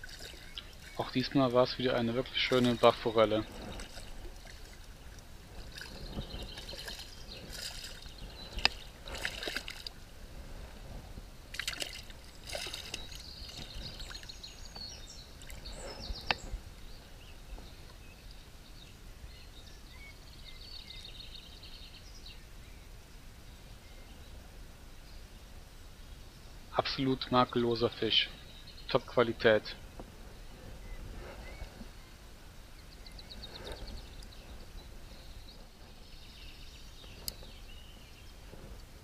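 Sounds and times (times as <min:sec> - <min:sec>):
stream water splashing: 0:00.0 - 0:10.3, 0:11.4 - 0:16.6
stream trickling: 0:00.0 - 0:18.5.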